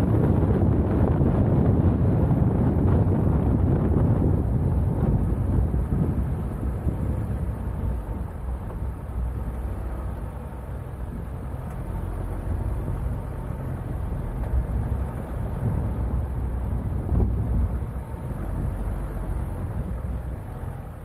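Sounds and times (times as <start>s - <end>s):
car engine rumble: 0.0s - 21.0s
wind buffeting microphone: 0.0s - 21.0s.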